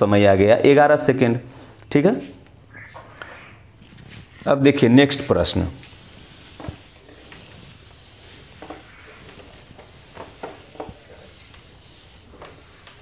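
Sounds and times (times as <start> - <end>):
cricket trilling: 0.0 - 13.0
duster rubbing on whiteboard: 5.8 - 12.6.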